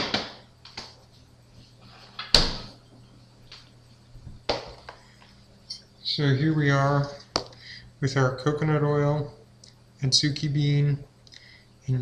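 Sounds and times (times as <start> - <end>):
refrigerator door banging shut: 2.3 - 2.7.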